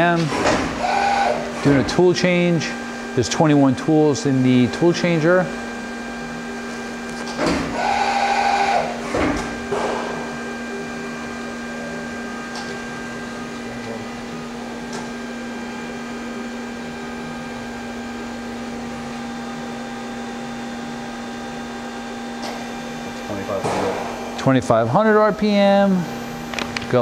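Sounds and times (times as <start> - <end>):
machine humming whine: 0.0 - 27.0
machine clunks: 23.6 - 24.3.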